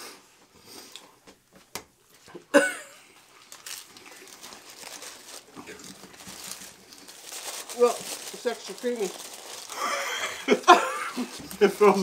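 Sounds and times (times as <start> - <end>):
paper wrappers crinkling: 3.2 - 12.0.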